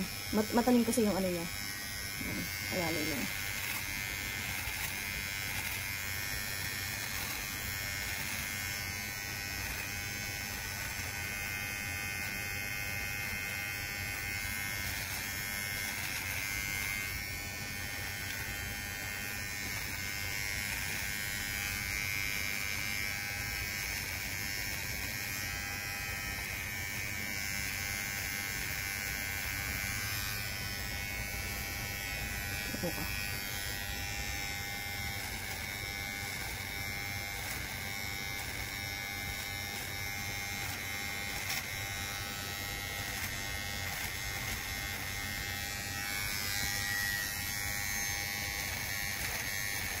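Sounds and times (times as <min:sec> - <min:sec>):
electric hair trimmer buzzing: 0:00.0 - 0:50.0.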